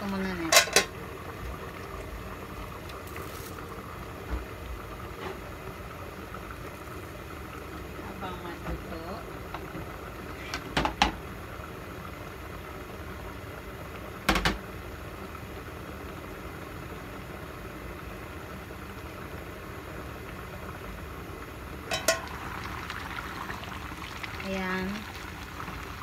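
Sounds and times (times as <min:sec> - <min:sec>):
stew boiling in pot: 0:00.0 - 0:26.0
pot lid clinking: 0:21.9 - 0:22.4.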